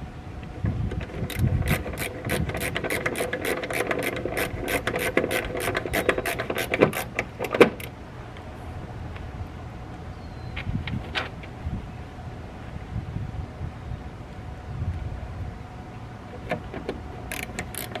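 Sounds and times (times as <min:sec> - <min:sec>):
screwdriver clicking: 0:01.2 - 0:07.3, 0:17.3 - 0:18.0.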